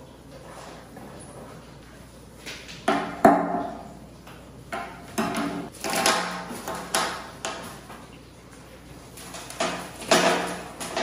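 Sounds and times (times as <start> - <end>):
rocks clacking in glass tank: 9.2 - 11.0.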